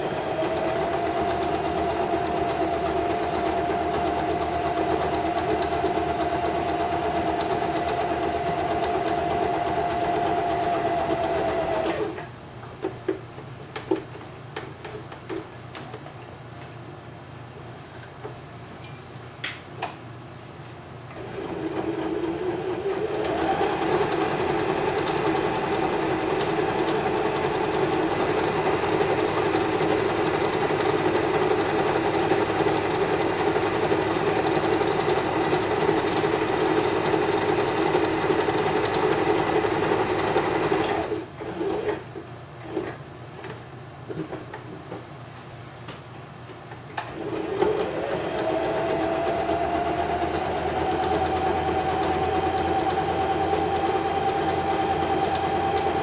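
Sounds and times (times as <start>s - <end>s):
sewing machine running: 0.0s - 12.2s, 21.2s - 42.0s, 47.1s - 56.0s.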